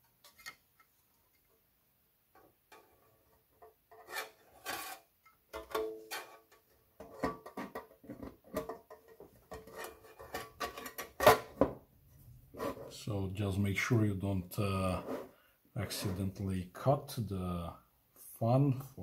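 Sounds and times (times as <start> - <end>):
sheet metal scraping and knocking: 2.7 - 11.8.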